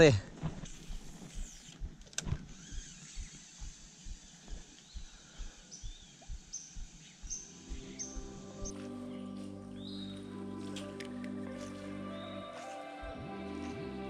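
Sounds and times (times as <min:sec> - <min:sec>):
soft low thumping: 0:00.2 - 0:08.8
birds whistling and chirping: 0:04.8 - 0:09.2, 0:09.8 - 0:10.2
background music: 0:07.6 - 0:14.0.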